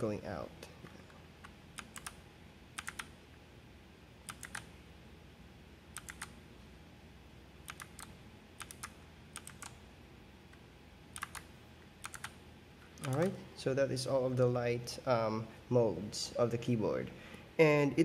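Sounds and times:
mechanical keyboard key clicks: 0:11.2 - 0:11.4.

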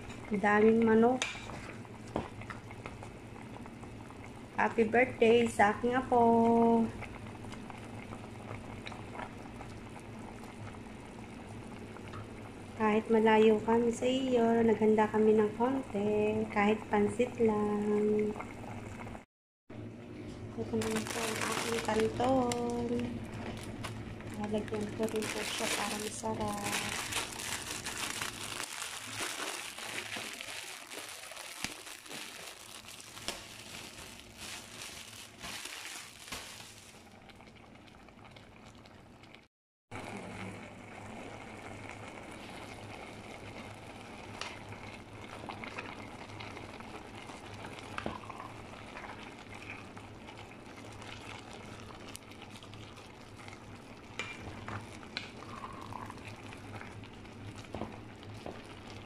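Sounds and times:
pot simmering with bubbling hiss: 0:00.0 - 0:59.0
plastic bag crinkling: 0:20.8 - 0:37.1.

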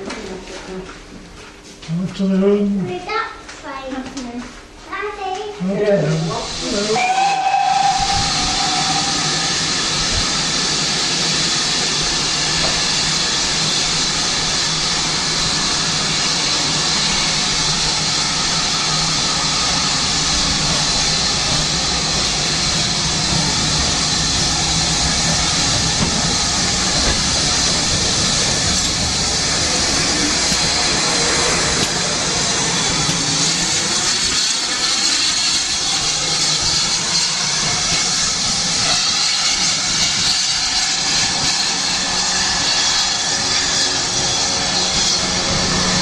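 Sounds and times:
steam locomotive hissing: 0:06.2 - 0:46.0
steam whistle: 0:06.7 - 0:10.2.

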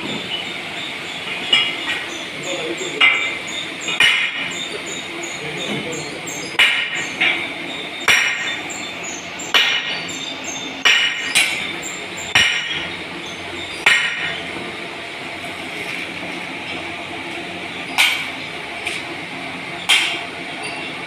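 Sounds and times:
steady background hum: 0:00.0 - 0:21.0
metal-on-metal strikes ringing: 0:12.3 - 0:12.9.

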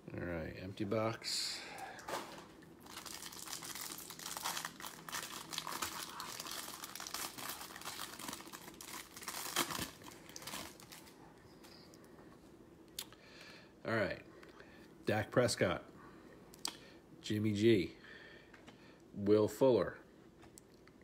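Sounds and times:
foil wrapper crinkling: 0:02.0 - 0:11.2
foil tearing: 0:02.8 - 0:11.1.

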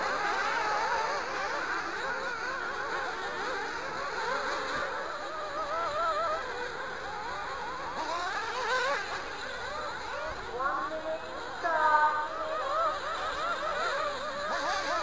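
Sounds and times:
rc buggy engines whining: 0:00.0 - 0:15.0.

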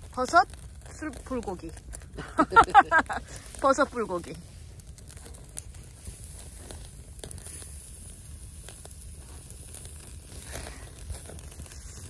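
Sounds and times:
charcoal fire crackling: 0:00.0 - 0:12.0
sharp fire pops: 0:00.0 - 0:12.0.

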